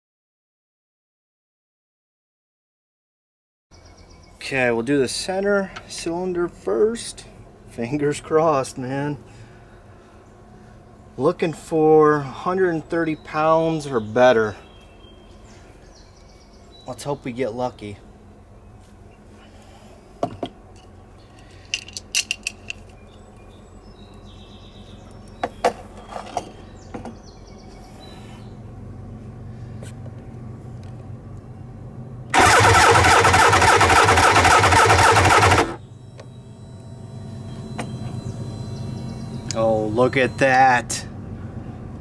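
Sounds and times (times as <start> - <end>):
electric starter cranking engine: 32.3 - 35.9.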